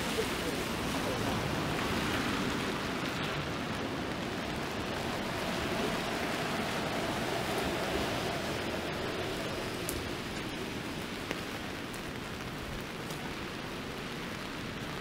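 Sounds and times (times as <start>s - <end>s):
steady rain hiss: 0.0s - 15.0s
traffic swishing on wet road: 0.0s - 15.0s.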